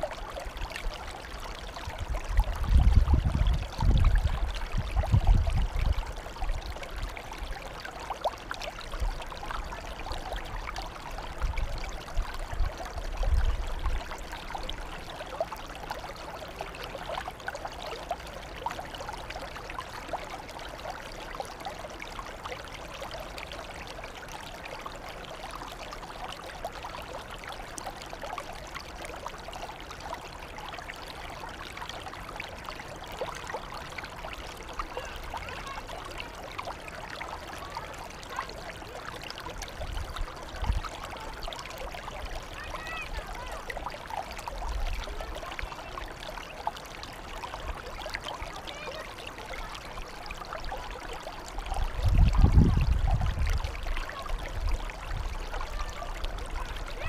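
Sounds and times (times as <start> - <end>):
water trickling and splashing: 0.0 - 57.0.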